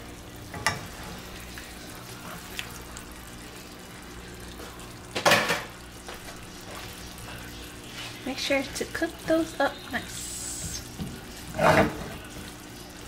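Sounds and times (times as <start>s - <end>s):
meat sizzling in frying pan: 0.0s - 13.0s
loud burst of sizzle: 7.0s - 13.0s.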